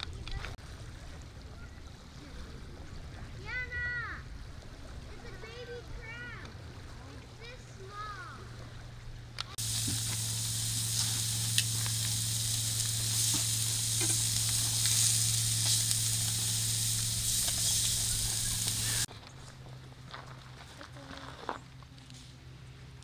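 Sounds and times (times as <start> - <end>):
low hum: 8.5 - 19.1
steaks sizzling on a grill pan: 9.6 - 19.1.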